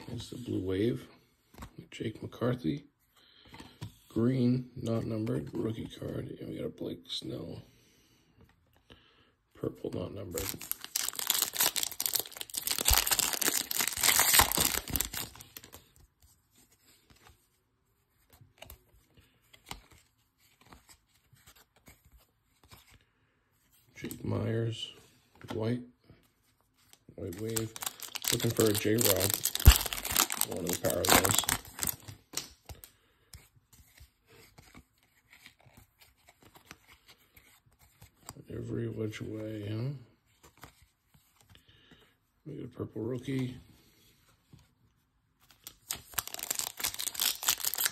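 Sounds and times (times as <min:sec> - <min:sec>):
cards rustling and clicking: 0:01.4 - 0:01.9, 0:10.2 - 0:23.0, 0:26.2 - 0:38.4, 0:40.3 - 0:42.0, 0:45.4 - 0:47.9
card pack wrapper tearing: 0:10.4 - 0:15.8, 0:27.2 - 0:32.5, 0:45.6 - 0:47.9.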